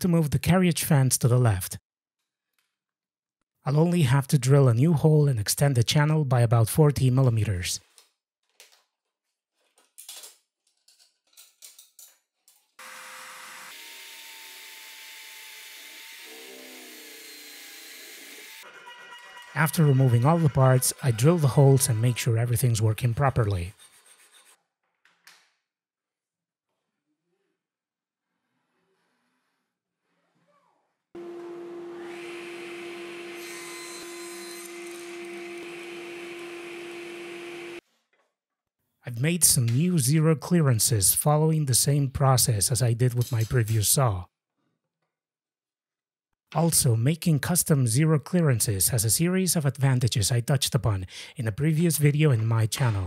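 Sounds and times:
table saw motor running: 0:12.8 - 0:22.3, 0:31.2 - 0:37.8.

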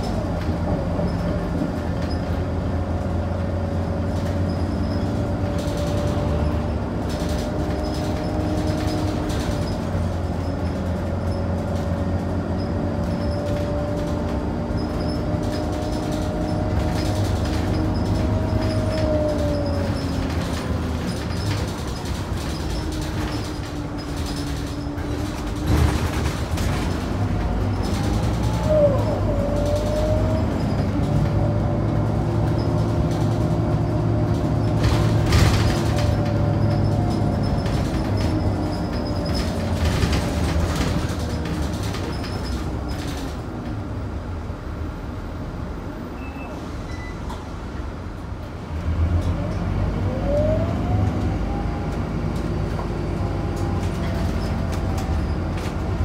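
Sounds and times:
bus diesel engine: 0:00.0 - 0:56.0
short squeal: 0:46.1 - 0:47.5.

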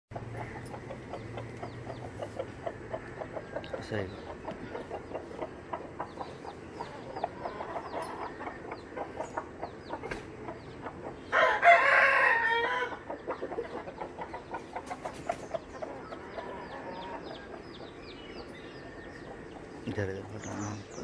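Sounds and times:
chickens clucking softly: 0:00.1 - 0:11.4, 0:12.5 - 0:21.0
rooster crowing: 0:11.3 - 0:13.0.

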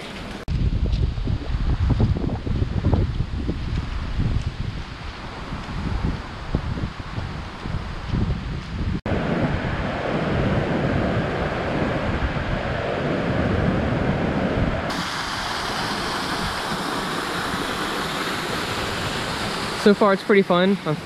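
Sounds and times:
wind on microphone: 0:00.0 - 0:19.9
river rushing: 0:14.9 - 0:21.0
waterfall hissing: 0:14.9 - 0:21.0.

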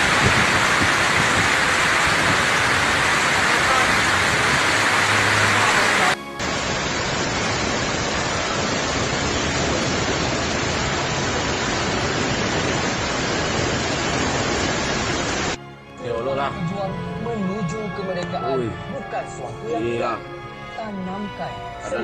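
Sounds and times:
heavy rain pouring: 0:00.0 - 0:15.6.

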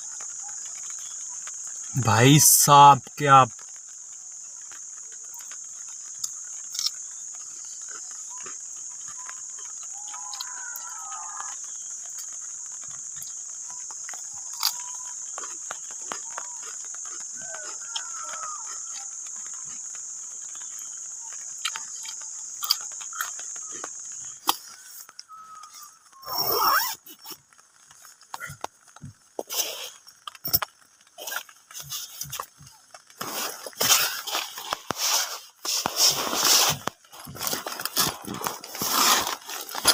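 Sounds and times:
high-pitched insect buzz: 0:03.0 - 0:27.4.

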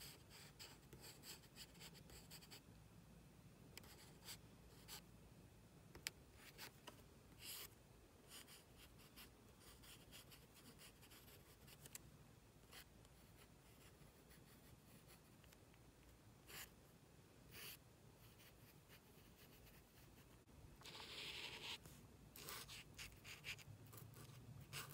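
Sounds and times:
pencil scratching on card: 0:08.3 - 0:12.0, 0:17.5 - 0:24.9.

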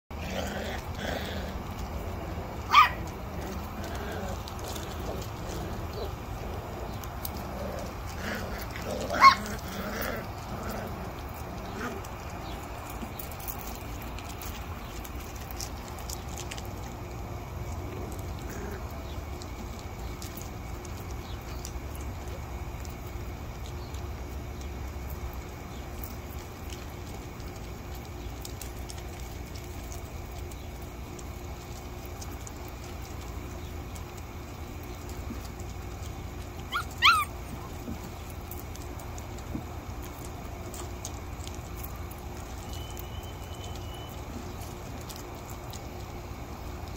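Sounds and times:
low background rumble: 0:00.1 - 0:46.9
puppy yelping: 0:02.6 - 0:06.2, 0:07.5 - 0:11.0, 0:36.6 - 0:38.0.

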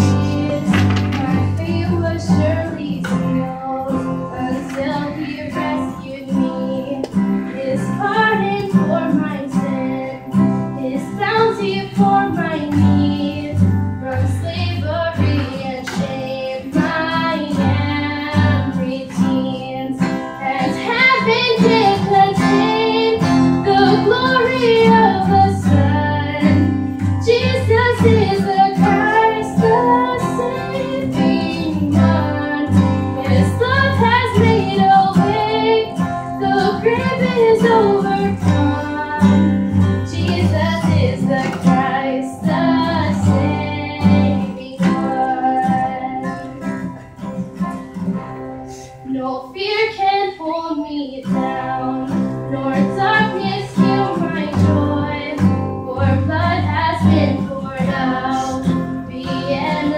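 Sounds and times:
bass guitar: 0:00.0 - 0:02.6
young female voice singing: 0:00.0 - 0:46.8, 0:48.7 - 0:59.9
acoustic guitar: 0:00.0 - 0:59.9.

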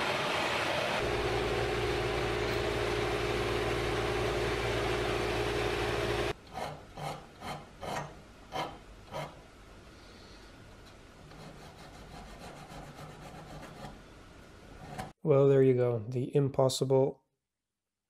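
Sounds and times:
lathe milling with whine: 0:00.0 - 0:06.3
hand file rasping on metal: 0:06.5 - 0:09.4, 0:11.3 - 0:14.0.

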